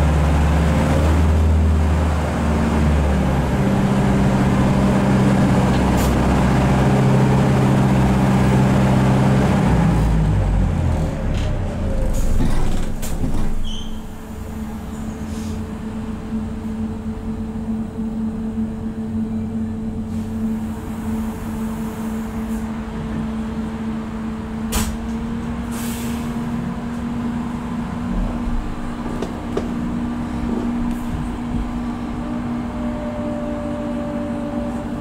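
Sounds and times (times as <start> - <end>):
brief hiss of air: 15.2 - 15.6, 25.7 - 26.4.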